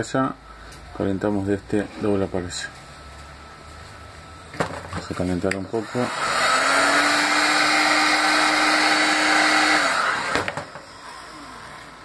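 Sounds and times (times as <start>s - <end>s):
heat gun running: 5.4s - 12.0s.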